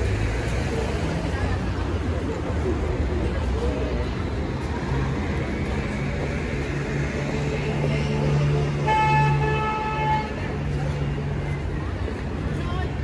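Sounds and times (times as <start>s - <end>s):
street traffic engine hum: 0.0s - 13.0s
vehicle horn: 8.8s - 10.4s.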